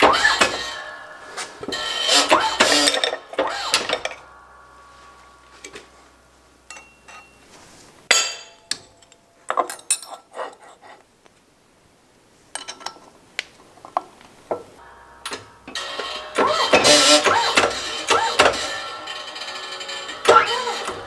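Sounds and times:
metal clinks and knocks: 0:06.7 - 0:07.4, 0:08.1 - 0:10.3.

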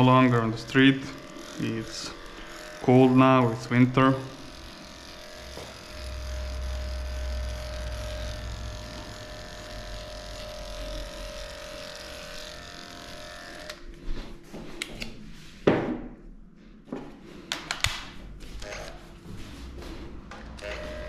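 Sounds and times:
electric clipper humming: 0:00.0 - 0:14.0, 0:18.6 - 0:19.0, 0:20.4 - 0:21.0.

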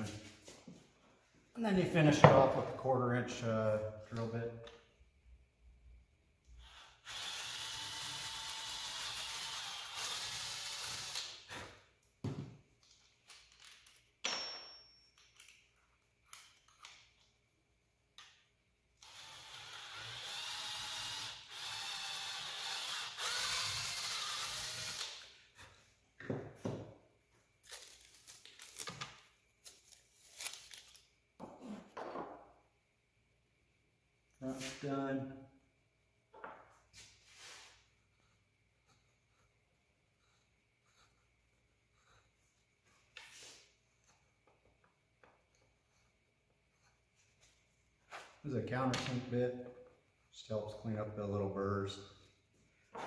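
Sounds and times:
cordless drill boring into wood: 0:06.6 - 0:11.3, 0:19.0 - 0:25.3.

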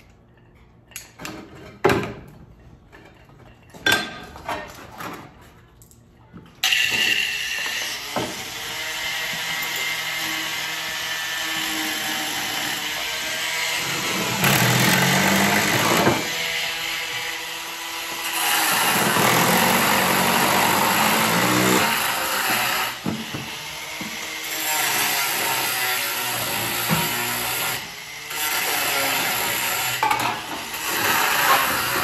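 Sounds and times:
power tools on roof tiles: 0:06.6 - 0:32.0.

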